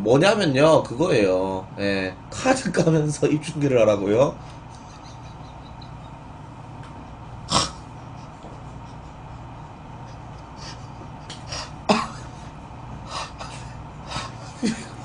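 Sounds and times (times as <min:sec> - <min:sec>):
low room hum: 0:00.0 - 0:15.0
man's stifled laughter: 0:04.7 - 0:06.3, 0:08.1 - 0:15.0.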